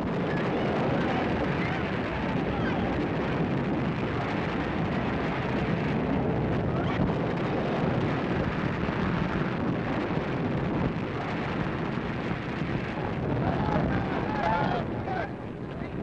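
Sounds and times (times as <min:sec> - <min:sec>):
large fire roaring: 0:00.0 - 0:16.0.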